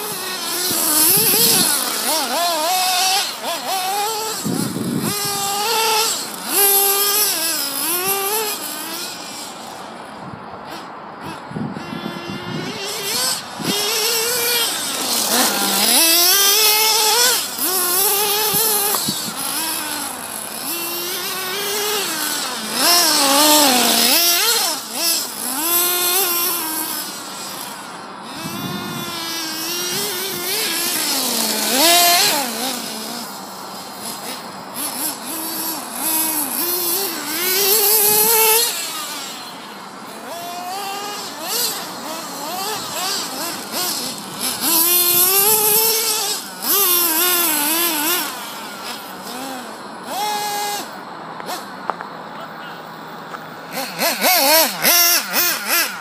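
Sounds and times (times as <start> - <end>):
small nitro engine revving: 0.0 - 56.0.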